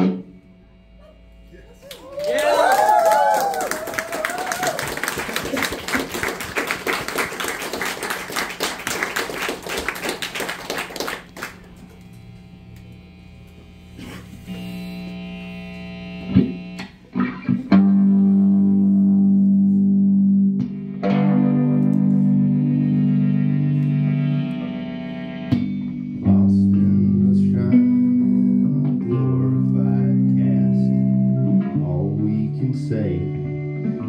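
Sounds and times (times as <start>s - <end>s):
electric guitar with effects: 0.0s - 6.5s, 8.7s - 34.0s
audience clapping: 1.8s - 12.0s.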